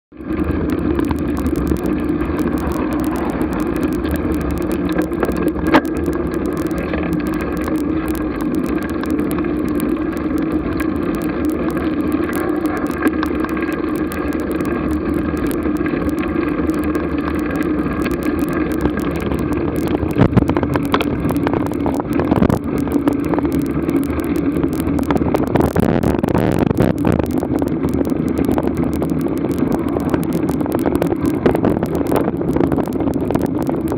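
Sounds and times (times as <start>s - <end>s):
constant hum: 0.1s - 33.9s.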